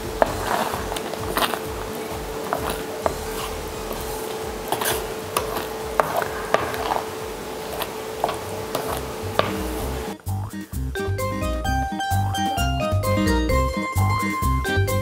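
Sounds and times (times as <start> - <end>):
spatula squelching thick food: 0.0 - 10.2
steady hum: 0.0 - 10.4
spatula tapping and scraping pan: 0.2 - 10.0.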